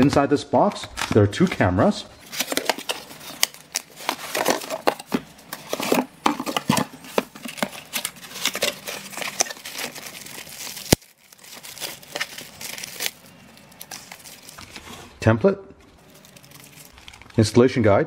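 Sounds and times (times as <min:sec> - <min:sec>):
cardboard box being opened: 0:02.2 - 0:10.9
plastic bag crinkling: 0:02.2 - 0:15.1, 0:15.8 - 0:17.5.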